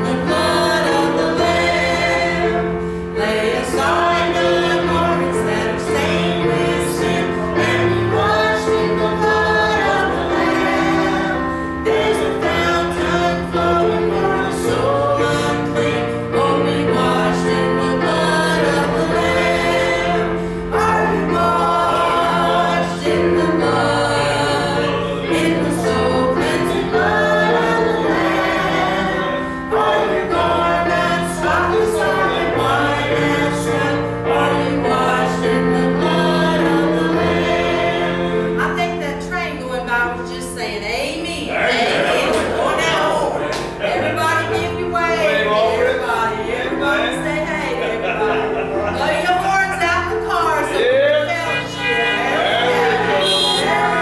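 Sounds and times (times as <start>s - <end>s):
instrumental accompaniment: 0.0s - 54.0s
woman singing gospel: 38.4s - 47.9s, 48.9s - 54.0s.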